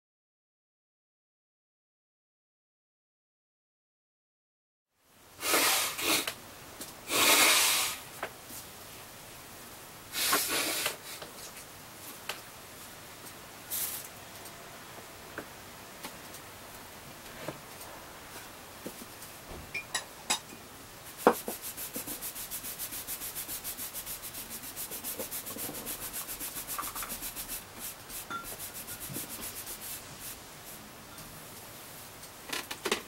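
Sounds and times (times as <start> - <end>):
baren scrubbing over paper: 21.2 - 30.8.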